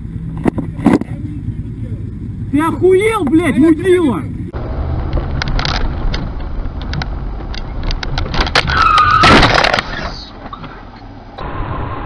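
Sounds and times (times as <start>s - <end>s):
car driving in traffic: 0.0s - 12.0s.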